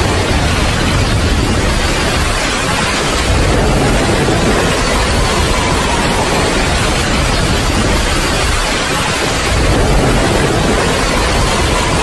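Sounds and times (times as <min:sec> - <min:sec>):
steady rain: 0:00.0 - 0:12.0.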